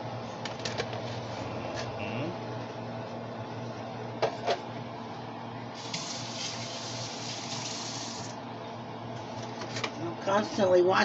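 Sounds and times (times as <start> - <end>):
kitchen tap running: 5.8 - 8.4.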